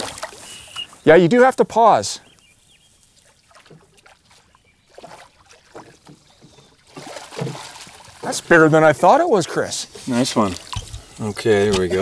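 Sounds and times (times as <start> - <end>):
river water splashing and gurgling: 0.0 - 1.1, 2.8 - 12.0.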